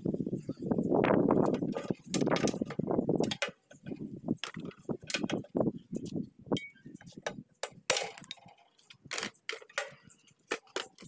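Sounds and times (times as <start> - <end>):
metal parts knocking and clinking: 1.4 - 5.6, 6.6 - 11.0.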